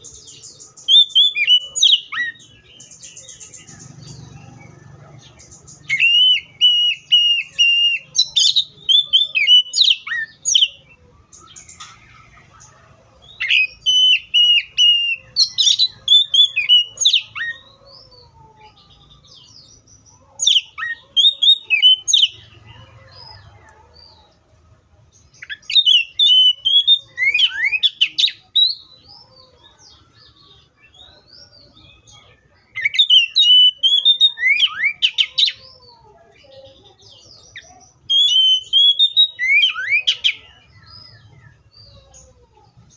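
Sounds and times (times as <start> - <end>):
bird singing whistled phrases: 0.0 - 3.6, 5.8 - 12.0, 13.4 - 17.7, 20.4 - 22.4, 25.4 - 28.9, 32.7 - 35.6, 37.2 - 41.6.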